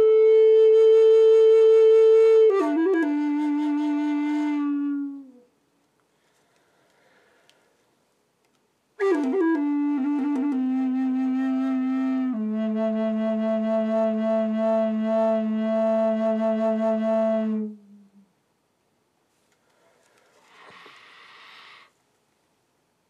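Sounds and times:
wooden flute playing: 0:00.0 - 0:05.5, 0:09.0 - 0:18.3.

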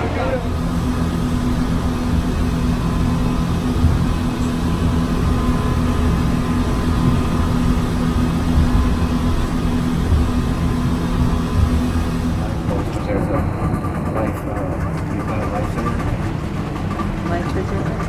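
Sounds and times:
rushing noise: 0:00.0 - 0:14.4
boat engines humming: 0:00.0 - 0:18.0.

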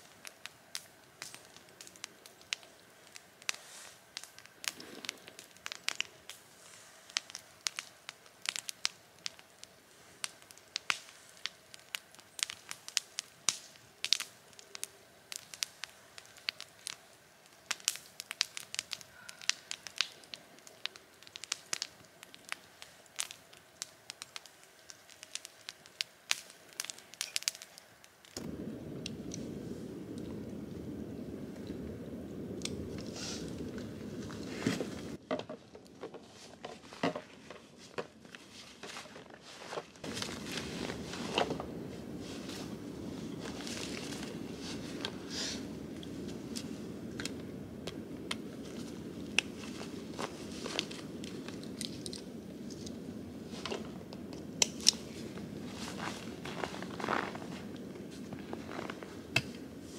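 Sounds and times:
sharp pops and snaps: 0:00.0 - 0:06.5, 0:07.1 - 0:31.8, 0:32.5 - 0:35.2, 0:40.0 - 0:59.9
wood fire crackling: 0:00.0 - 0:59.9.

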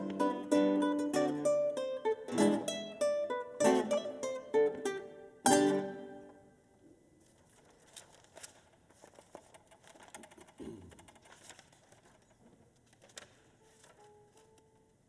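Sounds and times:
clicks and rustles of handling: 0:07.2 - 0:14.9.

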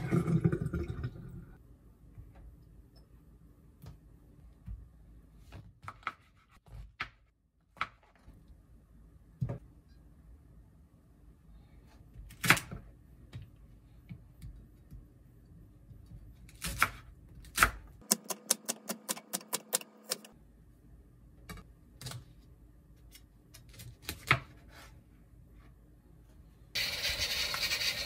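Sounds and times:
knife chopping on plastic board: 0:16.6 - 0:20.3.

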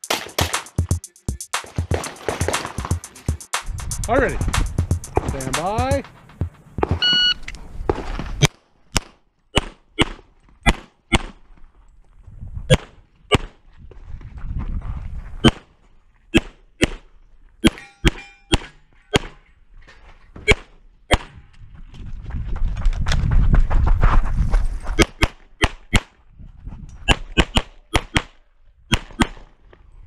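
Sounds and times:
brief ringing tone: 0:07.0 - 0:07.4.

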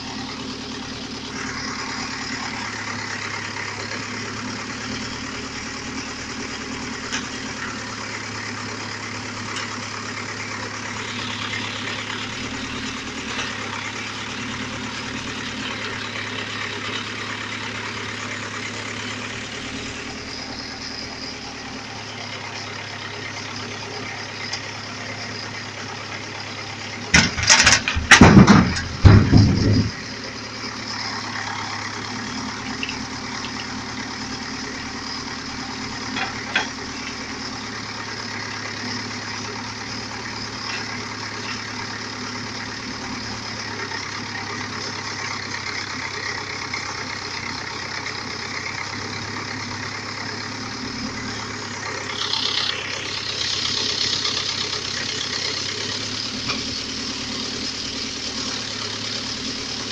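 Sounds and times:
tractor diesel engine running: 0:00.0 - 0:59.9
loud knocks and rumbles: 0:27.1 - 0:30.2.

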